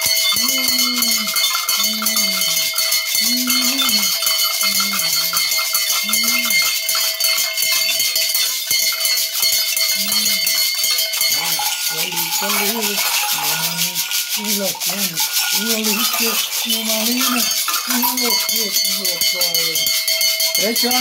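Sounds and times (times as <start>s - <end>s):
gourd maracas rattling: 0.0s - 21.0s
small metal bells ringing: 0.0s - 21.0s
man's voice: 3.2s - 4.2s, 11.3s - 19.9s, 20.6s - 21.0s.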